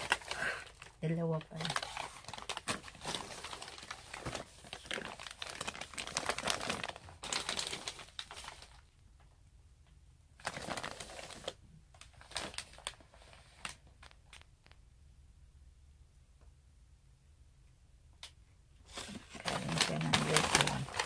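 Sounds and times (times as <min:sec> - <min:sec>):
plastic bag crinkling: 0:00.0 - 0:08.9, 0:10.4 - 0:14.8, 0:18.9 - 0:21.0.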